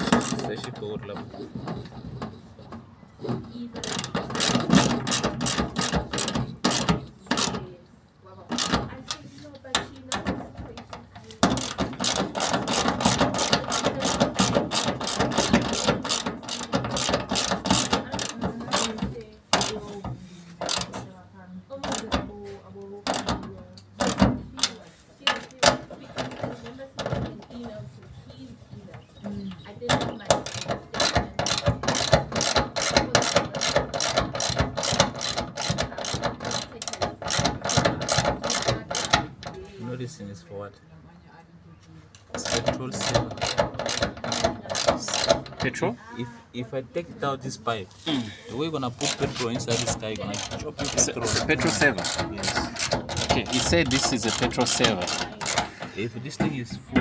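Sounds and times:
ratchet wrench clicking: 3.8 - 7.6, 8.5 - 9.2, 11.5 - 19.0, 19.6 - 19.9, 20.6 - 21.0, 21.9 - 22.2, 24.0 - 24.7, 30.4 - 39.3, 42.4 - 45.8, 49.0 - 55.8.

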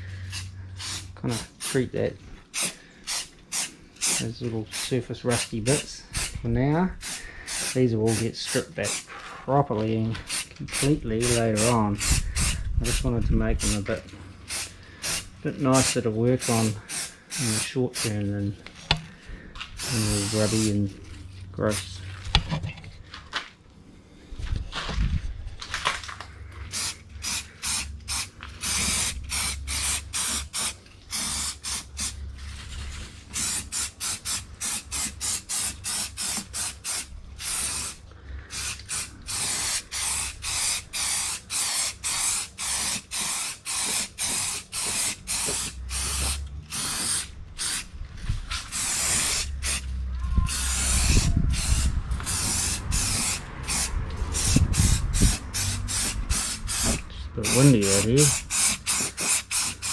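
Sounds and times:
aerosol can spraying bursts: 0.2 - 1.8, 2.5 - 6.4, 7.0 - 9.1, 10.2 - 13.8, 14.4 - 18.2, 19.8 - 20.8, 26.7 - 32.2, 33.3 - 47.9, 48.5 - 49.9, 50.5 - 59.9.

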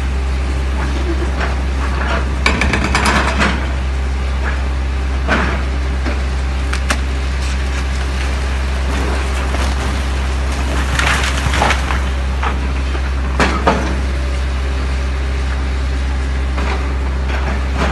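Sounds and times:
excavator diesel engine running: 0.0 - 17.9
breaking masonry crashing: 6.7 - 14.0.

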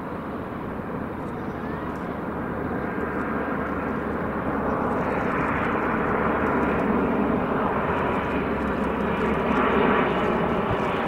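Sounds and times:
jet engines rumbling and hissing: 0.0 - 11.0.

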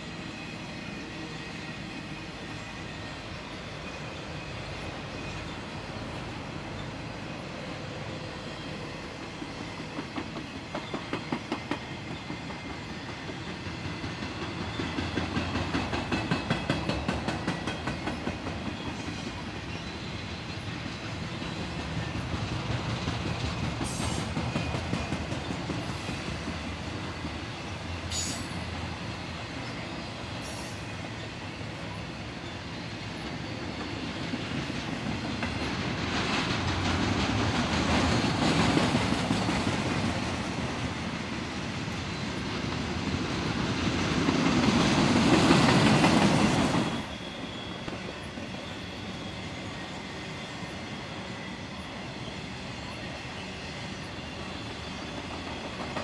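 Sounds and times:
high wheel squeals: 0.0 - 22.2, 23.8 - 35.0, 45.5 - 56.0
wheels clicking over rail joints: 9.2 - 19.9.

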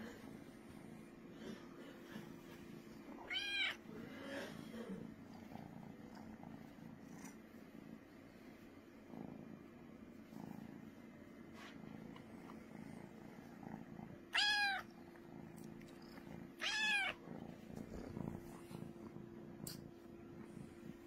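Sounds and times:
kitten purring: 0.0 - 21.0
kitten meowing: 3.3 - 3.8, 14.3 - 14.9, 16.6 - 17.2.

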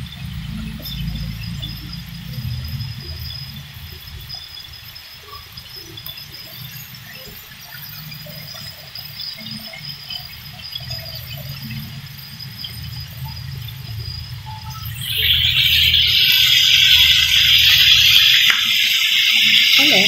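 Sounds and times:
low steady rumble: 0.0 - 4.7, 11.2 - 16.1
faint chirps: 0.0 - 20.0
food frying in hot oil: 0.0 - 20.0.

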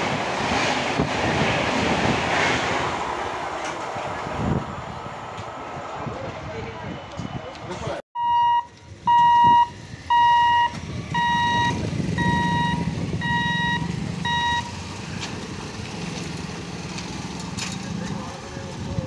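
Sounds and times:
level crossing buzzer beeping: 8.2 - 14.7
motorcycle engines running: 10.6 - 19.0.

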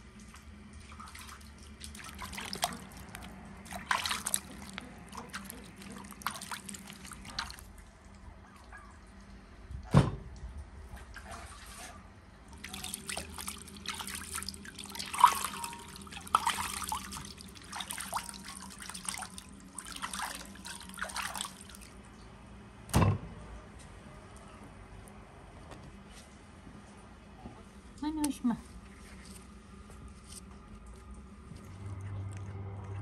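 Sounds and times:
water splashing and dripping: 0.0 - 9.3, 12.5 - 22.3.

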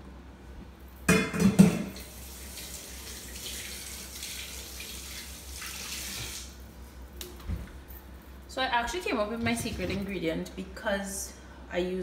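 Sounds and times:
faucet running into sink: 1.9 - 6.5.

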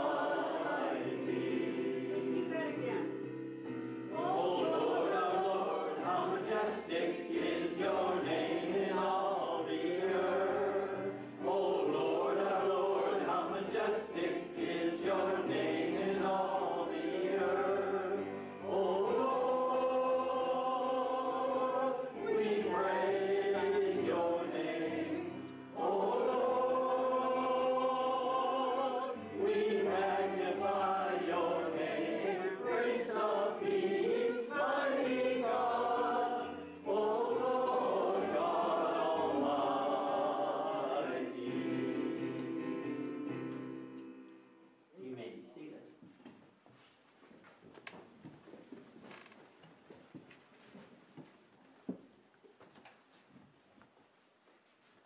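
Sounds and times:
group of voices singing: 0.0 - 3.0, 4.1 - 43.2.

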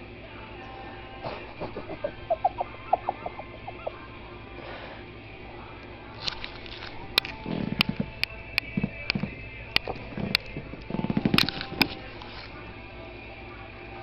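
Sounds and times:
dryer sheets crackling: 6.1 - 12.7.

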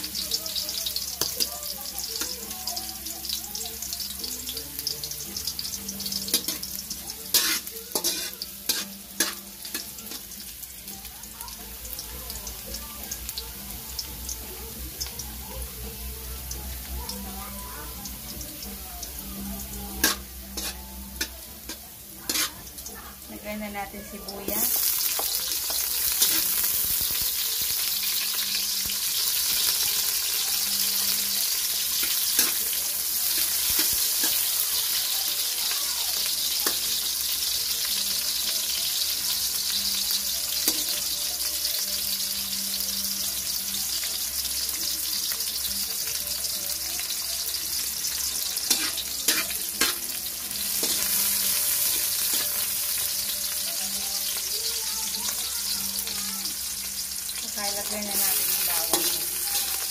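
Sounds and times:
food sizzling in hot oil: 0.0 - 59.9
metal spatula tapping a pan: 6.2 - 6.7, 7.3 - 10.2, 20.0 - 22.5, 40.6 - 41.0, 48.6 - 50.2, 58.1 - 59.4.

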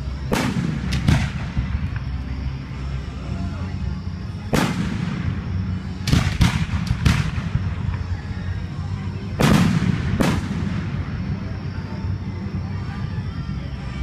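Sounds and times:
fireworks booming: 0.0 - 2.2, 4.4 - 8.2, 9.4 - 11.5.

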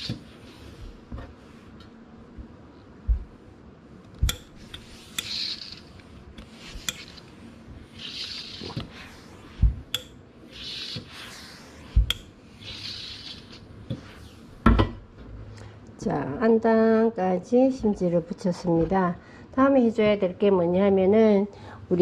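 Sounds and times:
steam iron hissing: 4.3 - 9.9.

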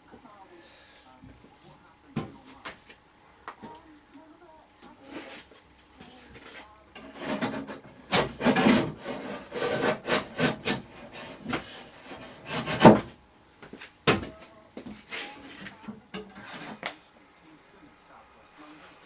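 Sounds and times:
blade scraping on wood: 6.4 - 13.1, 14.9 - 17.0.

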